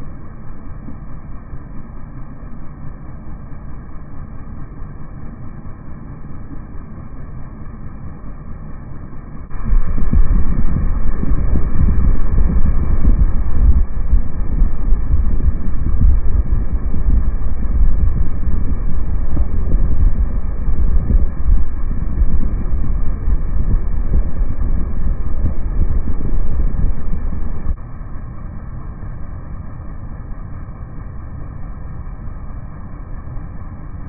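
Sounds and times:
air conditioner fan running: 0:00.0 - 0:34.0
wind buffeting microphone: 0:09.5 - 0:27.8.

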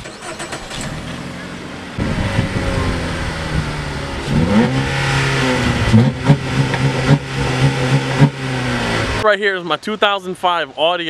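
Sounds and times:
car engine idling and revving: 0:00.0 - 0:09.2.

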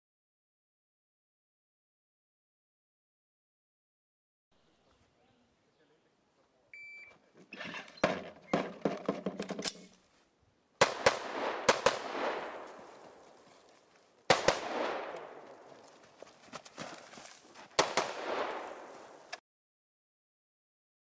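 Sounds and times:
shot timer beep: 0:06.8 - 0:07.1
rifle shots echoing: 0:10.8 - 0:13.3, 0:14.3 - 0:15.8, 0:17.8 - 0:19.3.

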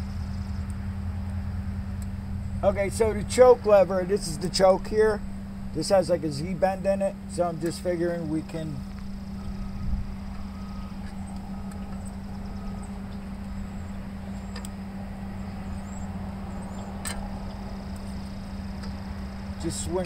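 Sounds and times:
steady low hum: 0:00.0 - 0:20.0
engine linkage clicks: 0:10.3 - 0:14.8, 0:15.4 - 0:20.0.

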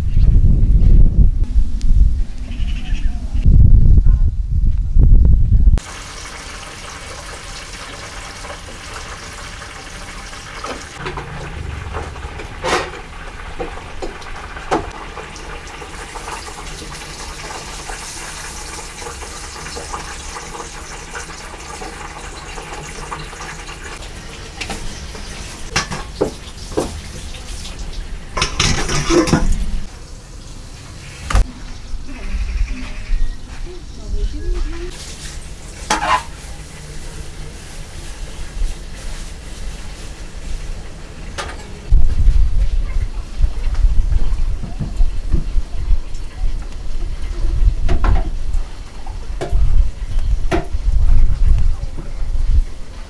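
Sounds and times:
tap water splashing: 0:25.7 - 0:27.0
kitchen clicks and knocks: 0:28.4 - 0:29.6.

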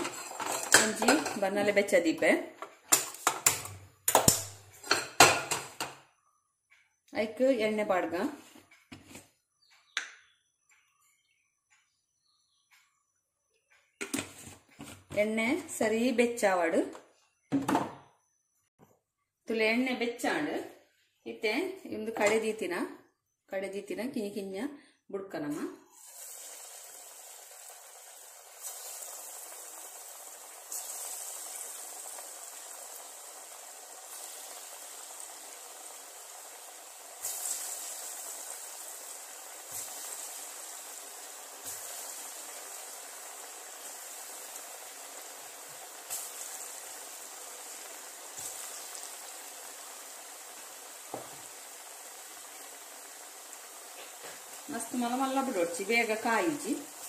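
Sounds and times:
oil sizzling while deep-frying: 0:00.0 - 0:06.1, 0:25.8 - 0:57.0.

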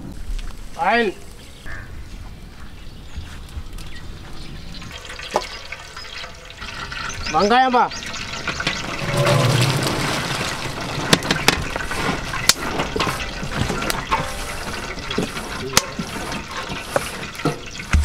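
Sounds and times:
onions sizzling in hot oil: 0:04.4 - 0:18.0.

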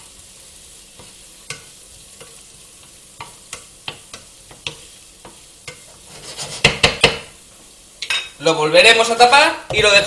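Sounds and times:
vegetables sizzling in a pan: 0:00.0 - 0:10.0
utensil knocking against pan: 0:06.6 - 0:07.3.

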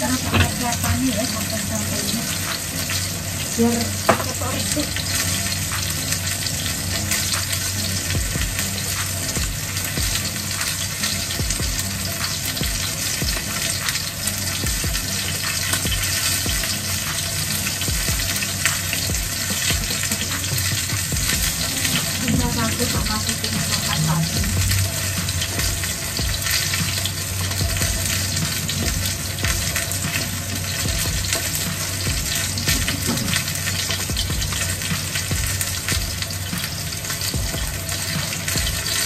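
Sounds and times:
food sizzling in a pan: 0:00.0 - 0:39.0.

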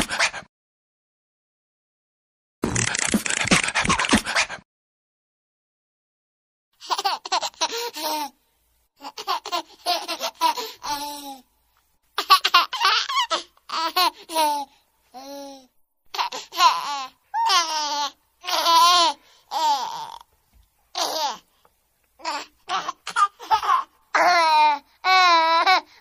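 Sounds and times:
high-pitched laughter bursts: 0:03.3 - 0:04.6.

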